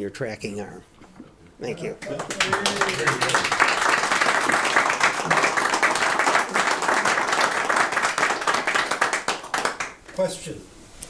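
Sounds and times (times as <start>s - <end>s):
small audience applauding: 1.8s - 10.2s.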